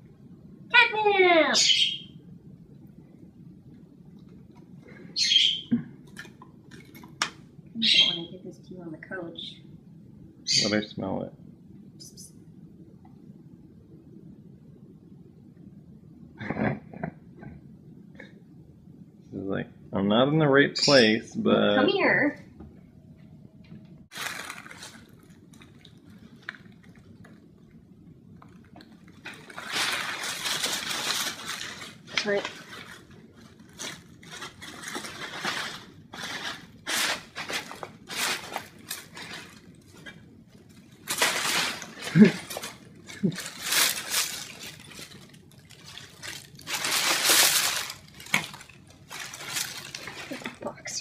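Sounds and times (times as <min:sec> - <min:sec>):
paper crinkling and rustling: 0:24.1 - 0:27.6, 0:28.4 - 0:50.8.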